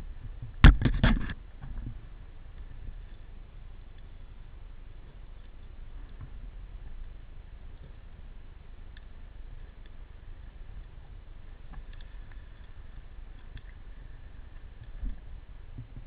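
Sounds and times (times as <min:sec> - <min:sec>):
underwater rumble: 0:00.0 - 0:16.0
faint clicks: 0:08.9 - 0:16.0.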